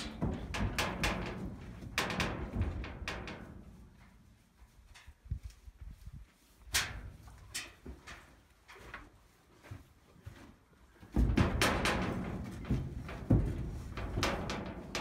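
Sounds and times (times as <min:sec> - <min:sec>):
knocks inside metal trailer: 0:00.0 - 0:03.8, 0:11.2 - 0:15.0.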